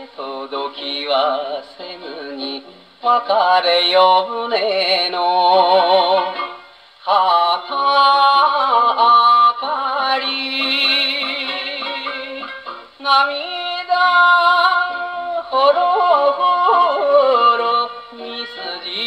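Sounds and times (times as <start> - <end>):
man singing with vibrato: 0.0 - 19.0
instrumental accompaniment: 5.1 - 19.0.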